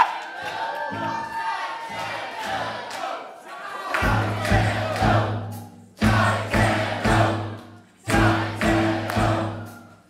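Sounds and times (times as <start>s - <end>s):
choir-like singing with accented chords: 0.4s - 10.0s.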